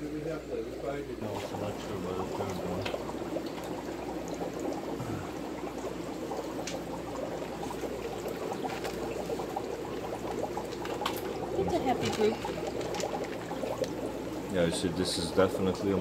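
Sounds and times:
water splashing into aquarium: 0:01.2 - 0:16.0.

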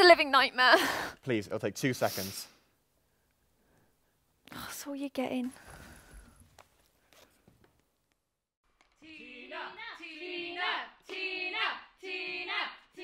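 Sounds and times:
woman singing softly: 0:09.0 - 0:13.0.

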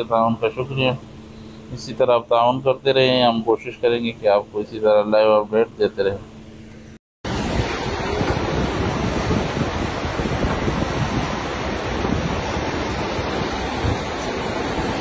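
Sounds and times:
stream rushing over rocks: 0:07.3 - 0:15.0
wind buffeting microphone: 0:07.3 - 0:15.0.

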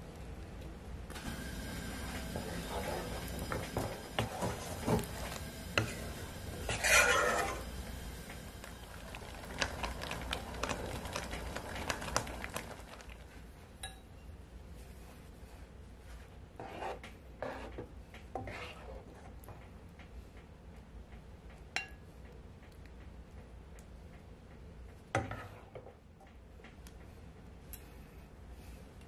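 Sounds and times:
spatula scraping a metal pot: 0:02.0 - 0:07.8, 0:16.6 - 0:17.8, 0:18.4 - 0:19.3, 0:25.2 - 0:25.8.

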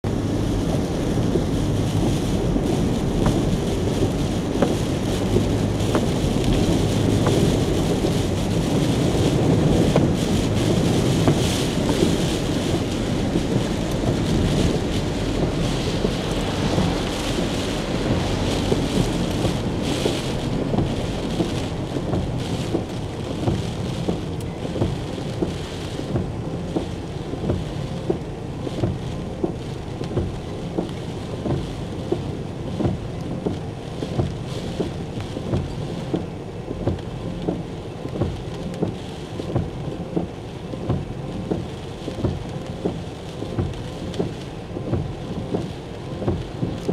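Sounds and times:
strong wind: 0:00.0 - 0:33.9
heavy rain: 0:00.0 - 0:46.9.

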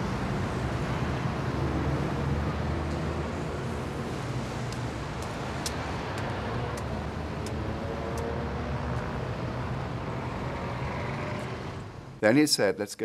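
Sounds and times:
city street traffic: 0:00.0 - 0:13.0
light sharp clicks: 0:04.7 - 0:08.3.

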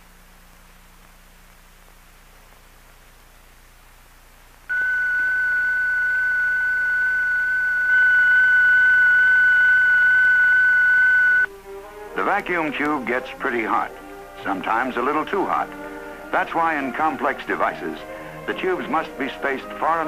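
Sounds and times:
faint film hiss: 0:00.0 - 0:20.0
steady high-pitched tone: 0:04.7 - 0:11.5.

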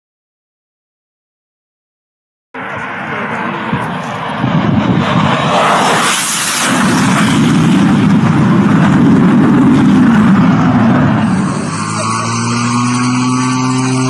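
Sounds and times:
jet fighter roaring overhead: 0:02.6 - 0:14.0.

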